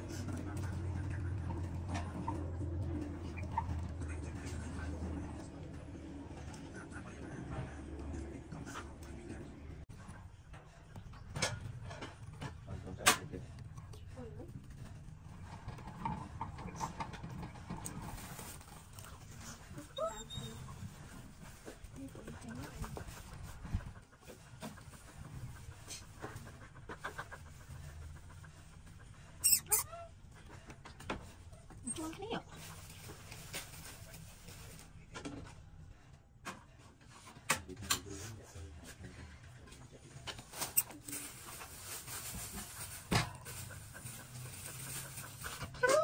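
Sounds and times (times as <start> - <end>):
hamster wheel rumbling and clicking: 10.6 - 19.1
hamster chirp: 29.4 - 30.0.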